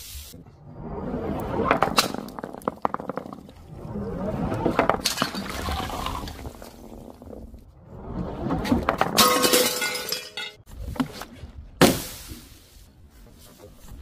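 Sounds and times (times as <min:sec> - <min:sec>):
glass jug smashing: 0:09.2 - 0:10.6.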